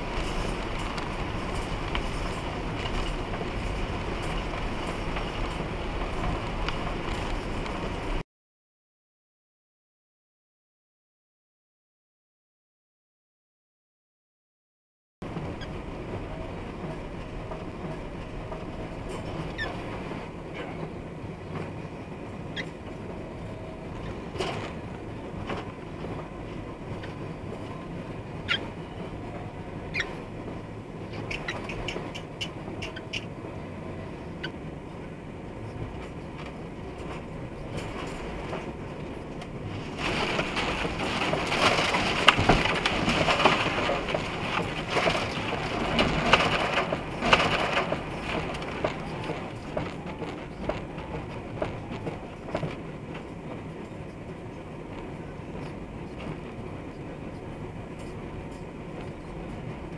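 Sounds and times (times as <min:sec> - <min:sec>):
truck engine and road rumble: 0:00.0 - 0:08.2, 0:15.2 - 0:59.9
light clicks and short squeaks: 0:19.1 - 0:19.9, 0:22.5 - 0:22.8, 0:28.4 - 0:28.8, 0:29.9 - 0:30.2, 0:31.1 - 0:33.4
icy branches scraping windshield: 0:37.1 - 0:53.1.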